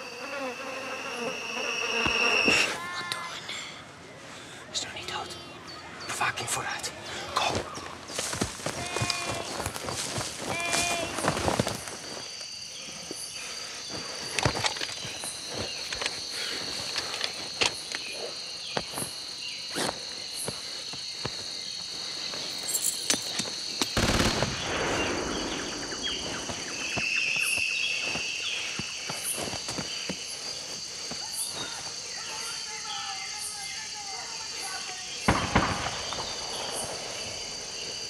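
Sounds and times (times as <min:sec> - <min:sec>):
high-pitched insect drone: 0:00.0 - 0:03.0, 0:24.8 - 0:38.0
twigs snapping and crackling: 0:07.8 - 0:12.0.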